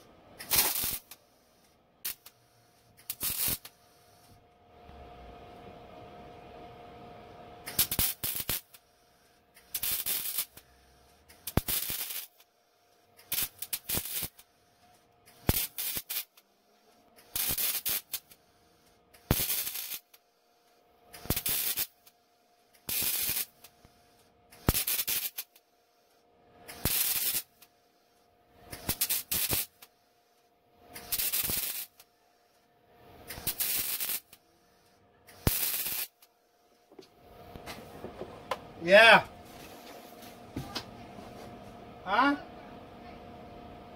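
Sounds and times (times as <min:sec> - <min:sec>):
welding arc crackling: 0:00.4 - 0:01.2, 0:02.0 - 0:04.4, 0:07.7 - 0:08.8, 0:09.6 - 0:12.5, 0:13.2 - 0:14.5, 0:15.3 - 0:16.4, 0:17.2 - 0:18.4, 0:19.1 - 0:20.2, 0:21.1 - 0:22.1, 0:22.7 - 0:23.7, 0:24.5 - 0:25.6, 0:26.7 - 0:27.7, 0:28.7 - 0:29.9, 0:30.9 - 0:32.1, 0:33.2 - 0:34.4, 0:35.3 - 0:36.3.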